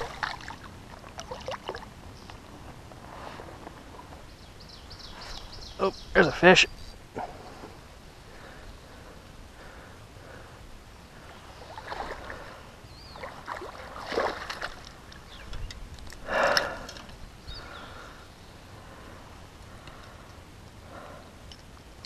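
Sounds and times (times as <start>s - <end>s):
fish splashing at the surface: 13.2s - 15.0s.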